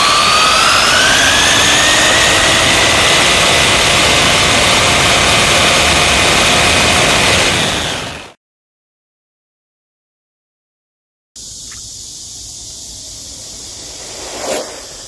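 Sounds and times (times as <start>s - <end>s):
rushing wind: 0.0s - 8.3s, 11.6s - 15.0s
rc car motor and gear whine: 0.0s - 8.4s.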